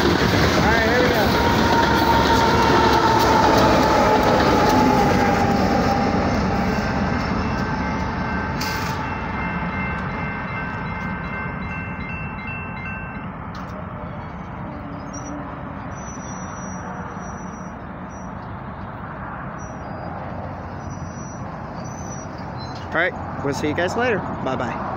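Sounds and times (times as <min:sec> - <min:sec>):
crossing warning bell dinging: 0:00.0 - 0:18.9
train rumble: 0:00.0 - 0:24.9.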